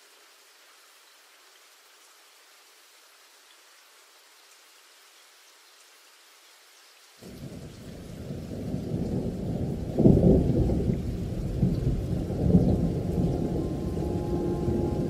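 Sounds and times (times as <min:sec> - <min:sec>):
faint rain hiss: 0:00.0 - 0:15.0
thunder rumble: 0:07.2 - 0:15.0.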